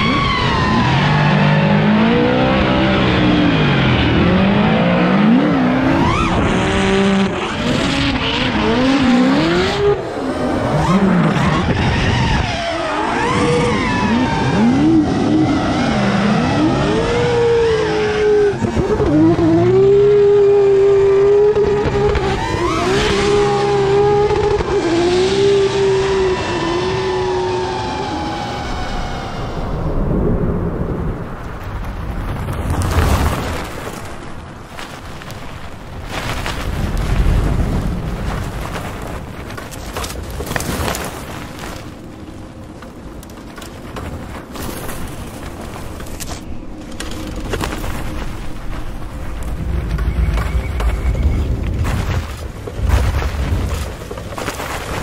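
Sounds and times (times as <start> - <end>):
tyres squealing and skidding: 0.0 - 2.2, 5.2 - 6.8, 7.4 - 19.4, 21.0 - 29.9, 49.4 - 52.8
car engines revving hard: 0.0 - 29.6.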